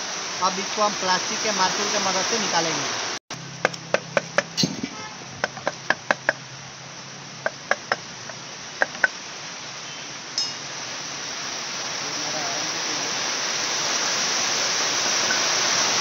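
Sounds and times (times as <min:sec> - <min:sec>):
plastic mallet knocking metal cover: 0:03.6 - 0:04.8, 0:05.4 - 0:06.4, 0:07.4 - 0:08.0, 0:08.8 - 0:09.1
metal cover clinking: 0:04.3 - 0:05.0, 0:10.4 - 0:10.7.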